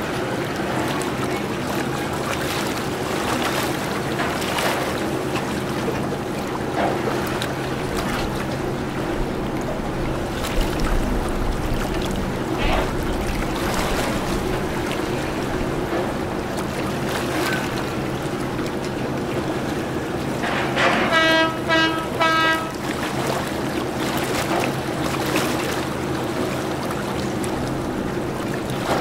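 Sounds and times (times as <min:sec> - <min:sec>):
low hum of ship engine: 0:00.0 - 0:29.0
ship horn blasts: 0:19.2 - 0:24.3.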